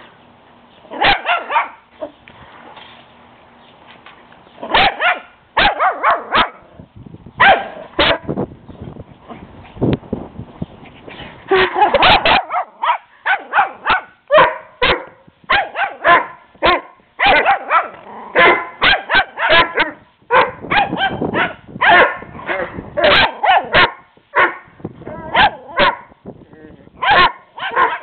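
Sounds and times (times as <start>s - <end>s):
puppy barking sharply: 1.0s - 1.8s, 4.7s - 6.6s, 7.4s - 8.3s, 12.0s - 22.3s, 23.0s - 24.6s, 25.3s - 26.1s, 27.0s - 28.0s.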